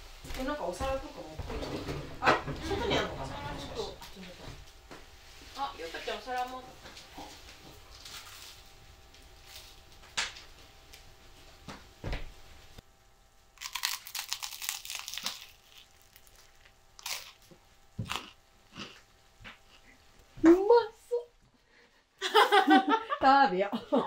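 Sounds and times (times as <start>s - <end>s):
crinkling and tearing: 7.8s - 8.7s, 13.6s - 17.5s.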